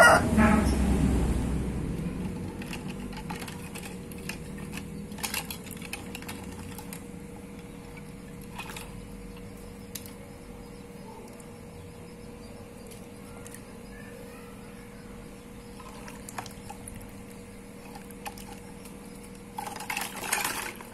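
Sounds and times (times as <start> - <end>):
faint steady hum: 0.0 - 20.9.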